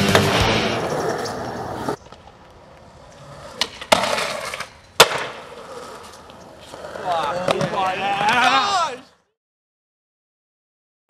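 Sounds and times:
skateboard clacks: 0:00.0 - 0:08.9
skateboard scraping along ledge: 0:00.0 - 0:09.0
skateboard wheels rolling: 0:00.0 - 0:09.2
skateboard landing slap: 0:05.0 - 0:05.4.

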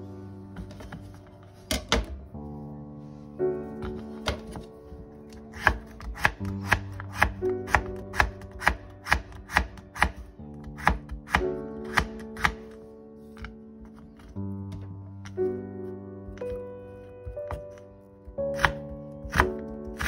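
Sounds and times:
light background music: 0:00.0 - 0:20.0
knife chopping on wooden board: 0:05.5 - 0:12.7, 0:18.5 - 0:20.0.

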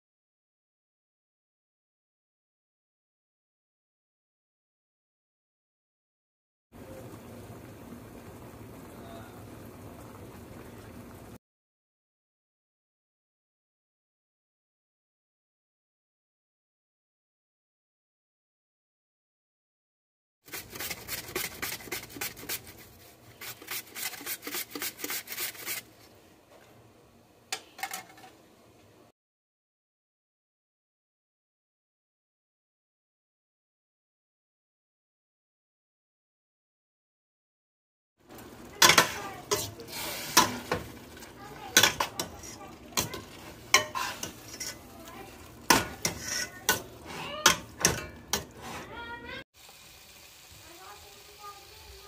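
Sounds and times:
faint sizzle: 0:06.8 - 0:11.4, 0:20.5 - 0:29.1, 0:38.2 - 0:52.0
onion scraping on grater: 0:20.5 - 0:25.9, 0:45.7 - 0:47.6, 0:48.3 - 0:49.0.

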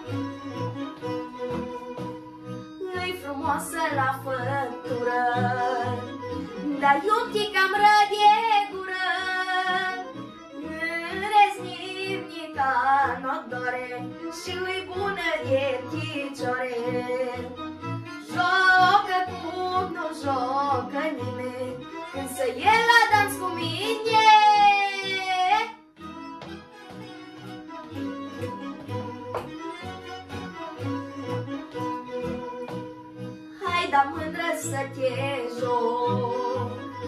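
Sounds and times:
instrumental accompaniment: 0:00.0 - 0:37.0
boy singing folk song: 0:18.3 - 0:25.7, 0:33.6 - 0:36.8.

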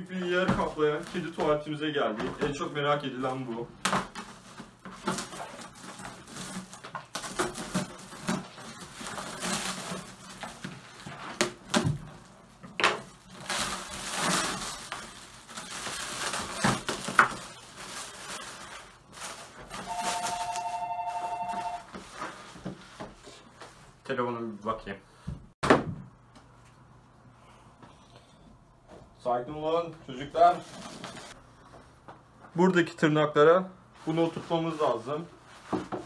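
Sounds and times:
plastic wrap crinkling and tearing: 0:03.8 - 0:20.8
phone ringing: 0:19.8 - 0:21.9.

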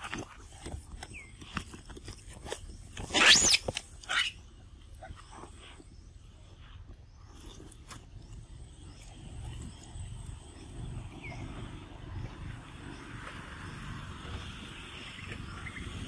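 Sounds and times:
monkeys chewing: 0:00.0 - 0:06.0
monkey squealing: 0:03.1 - 0:04.4.

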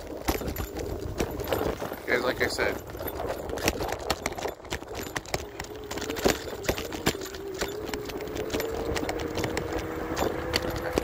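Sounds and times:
scooter rattling over pavement: 0:00.0 - 0:11.0
electric scooter motor whining: 0:02.8 - 0:11.0.

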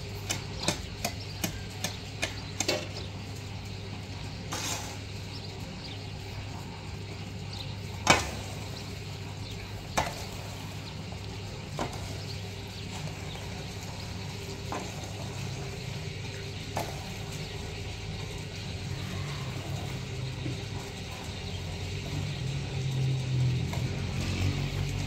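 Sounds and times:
shovel scraping wet concrete: 0:04.5 - 0:05.0.

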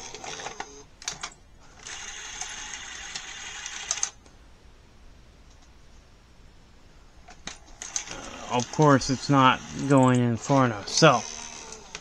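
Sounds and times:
tape motor and gears whirring: 0:00.0 - 0:00.9, 0:07.8 - 0:12.0.

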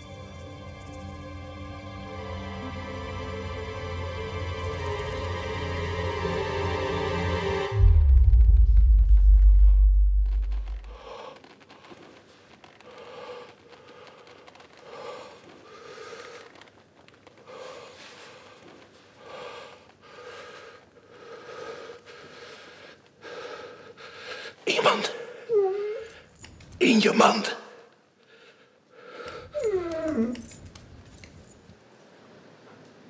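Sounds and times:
deep low rumble: 0:07.7 - 0:11.1.

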